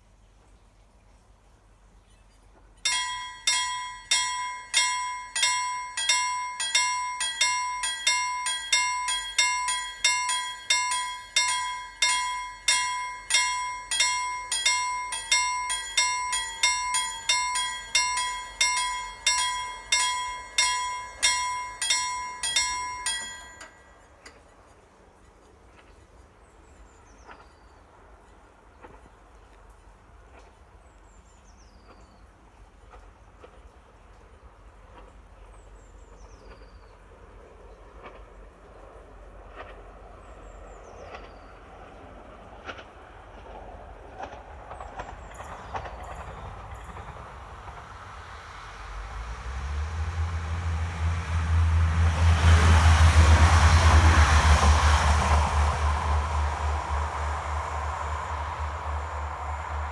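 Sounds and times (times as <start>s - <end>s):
level crossing warning bell: 2.8s - 24.5s, 44.2s - 48.3s.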